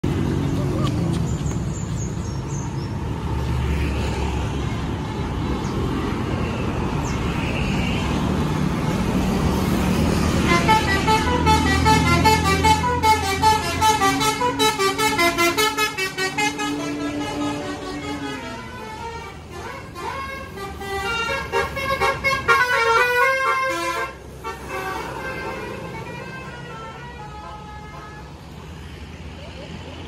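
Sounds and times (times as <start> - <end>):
road traffic rumble: 0.0 - 30.0
musical air horn melody: 10.4 - 28.3.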